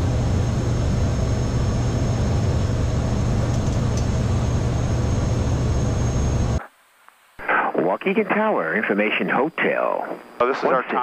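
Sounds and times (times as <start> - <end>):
turboprop engine idling: 0.0 - 6.6.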